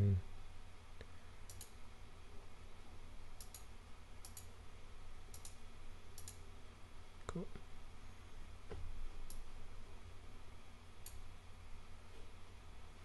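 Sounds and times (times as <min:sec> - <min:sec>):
computer mouse clicking: 0:01.4 - 0:01.8, 0:03.4 - 0:04.5, 0:05.3 - 0:06.4.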